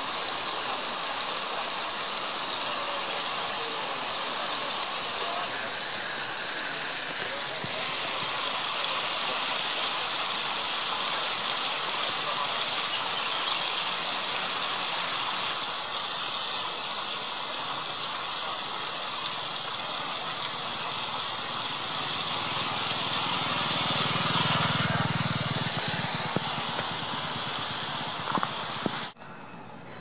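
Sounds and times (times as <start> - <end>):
river rushing: 0.0 - 29.2
motorcycle engine drone: 21.7 - 29.2.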